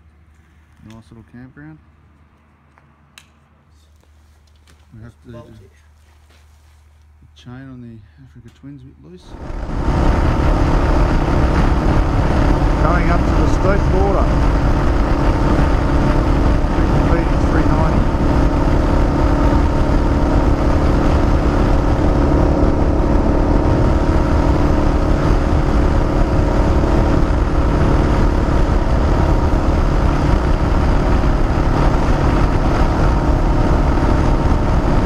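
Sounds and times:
wind and road noise: 0:00.0 - 0:35.0
motorcycle engine cruising: 0:09.2 - 0:35.0.

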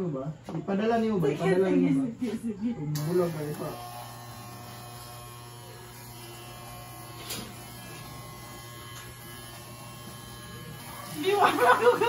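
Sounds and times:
electric hair clipper buzzing: 0:02.9 - 0:12.0.

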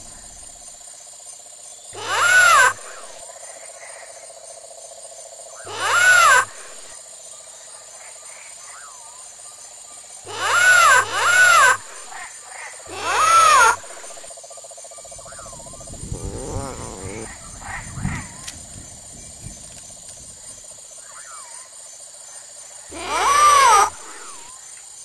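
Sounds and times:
creature squawks: 0:02.0 - 0:03.2, 0:05.7 - 0:06.9, 0:10.3 - 0:12.3, 0:12.9 - 0:14.3, 0:16.1 - 0:18.4, 0:22.9 - 0:24.5.

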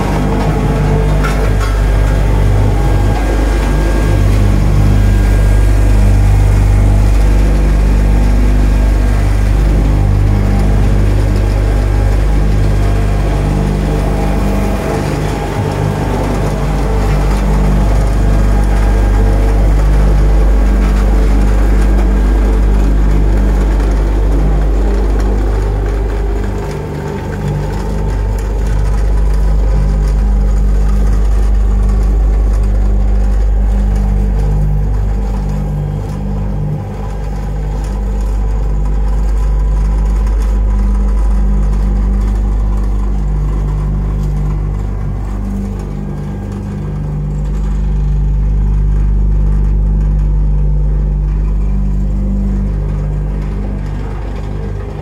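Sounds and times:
diesel engine humming: 0:00.0 - 0:55.0.

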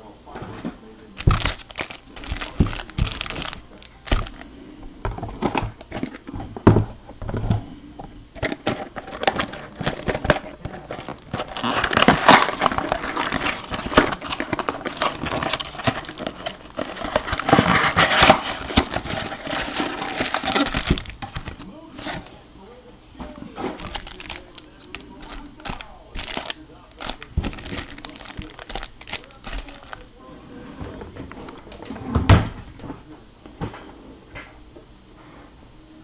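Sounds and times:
foil wrappers crinkling: 0:01.2 - 0:04.5, 0:08.4 - 0:22.4, 0:23.8 - 0:30.2.

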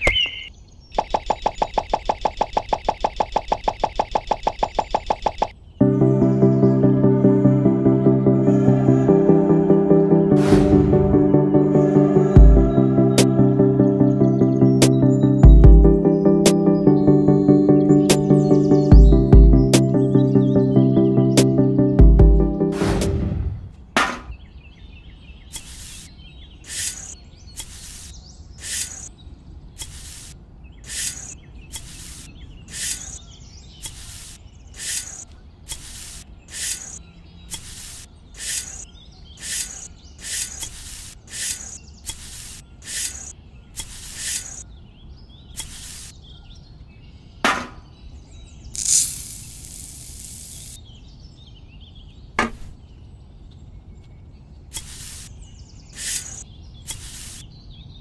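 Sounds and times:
sharp click: 0:25.5 - 0:26.1, 0:26.7 - 0:29.1, 0:29.8 - 0:33.2, 0:33.8 - 0:44.6, 0:45.6 - 0:46.1, 0:48.8 - 0:50.8, 0:54.7 - 0:55.3, 0:56.0 - 0:57.4
shovel scraping dry sand: 0:25.5 - 0:29.1, 0:29.8 - 0:33.2, 0:33.8 - 0:44.6, 0:45.6 - 0:46.2, 0:48.8 - 0:50.8, 0:54.7 - 0:55.3, 0:56.0 - 0:57.4
sand pouring with a hiss: 0:25.6 - 0:26.1, 0:26.7 - 0:29.1, 0:29.8 - 0:33.2, 0:33.9 - 0:37.0, 0:37.6 - 0:38.8, 0:39.4 - 0:44.6, 0:45.6 - 0:46.2, 0:48.8 - 0:50.8, 0:54.8 - 0:55.3, 0:56.0 - 0:57.4.

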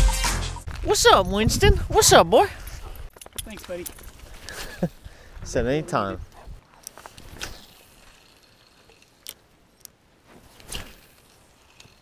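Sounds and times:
fishing reel clicks: 0:06.8 - 0:09.9, 0:10.6 - 0:12.0
fishing rod swish: 0:10.3 - 0:11.9.

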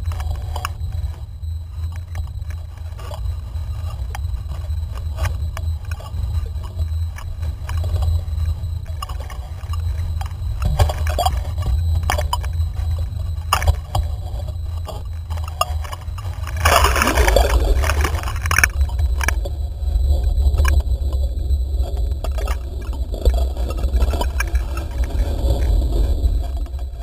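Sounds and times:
low rumble: 0:00.0 - 0:27.0
sea water splashing: 0:16.5 - 0:18.7.

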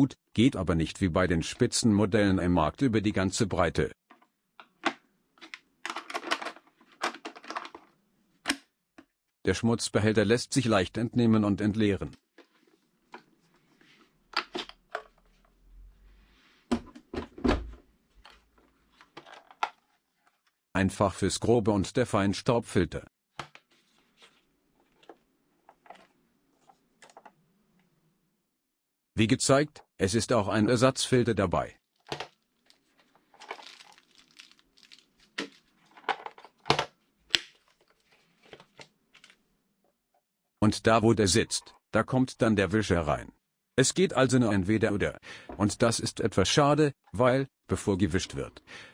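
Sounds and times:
plastic rustling: 0:31.8 - 0:39.4.

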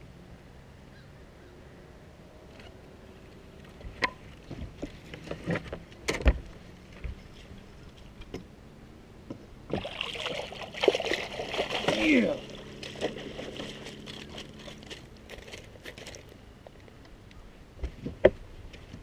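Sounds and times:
water splashing: 0:09.7 - 0:16.3.

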